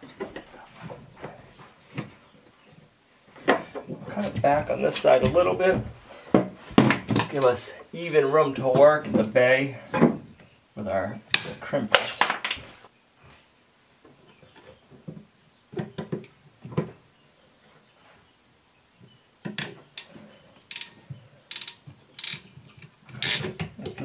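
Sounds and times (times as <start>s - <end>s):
crimping tool ratcheting rasps: 20.7s - 20.9s, 21.5s - 22.4s, 23.2s - 23.5s.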